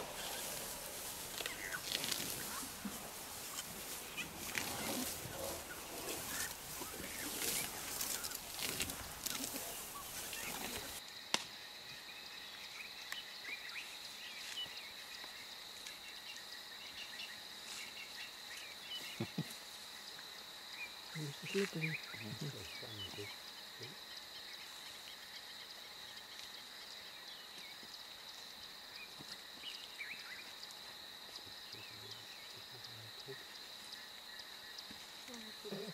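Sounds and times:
birds chirping: 0.0s - 11.0s, 12.2s - 28.4s
elephants rustling through grass: 0.0s - 11.0s
high insect drone: 0.0s - 35.9s.

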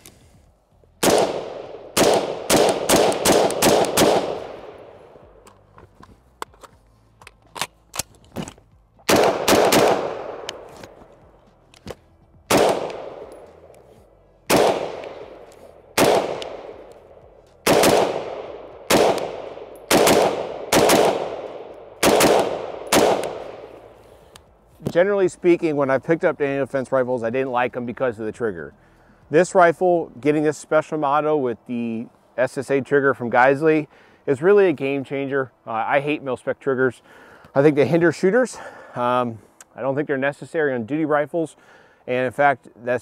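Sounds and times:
rifle gunshots with echo: 1.0s - 5.2s, 9.1s - 10.9s, 12.5s - 13.7s, 14.5s - 24.0s.

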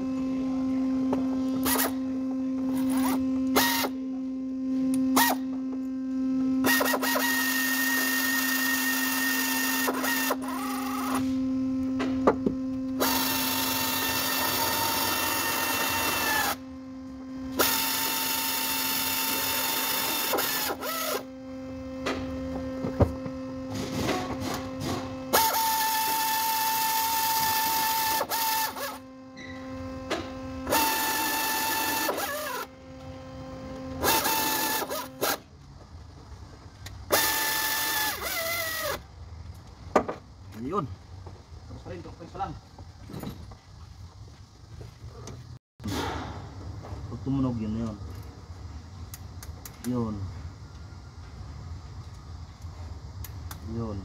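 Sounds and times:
cordless power tool whirring: 0.0s - 35.6s, 36.8s - 39.1s.

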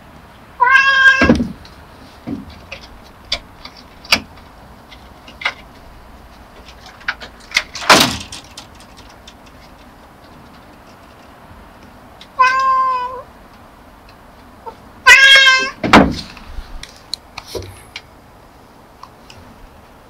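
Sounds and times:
cat meowing: 0.6s - 1.4s, 12.4s - 13.3s, 14.7s - 15.8s
loud rustling: 1.2s - 11.5s.

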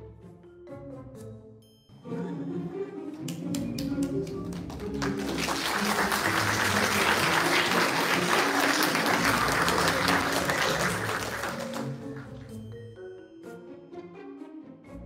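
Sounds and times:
background music: 0.0s - 15.0s
audience applauding: 3.2s - 12.8s.

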